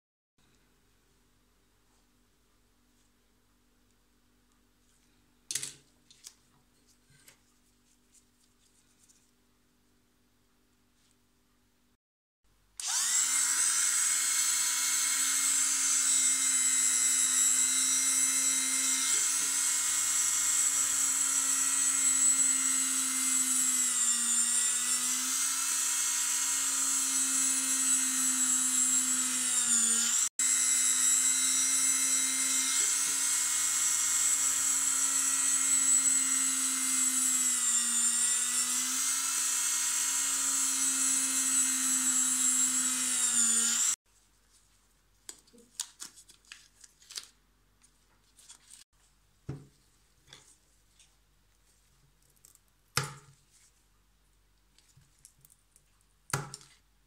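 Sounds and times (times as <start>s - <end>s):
rotary tool whining: 12.8s - 44.0s.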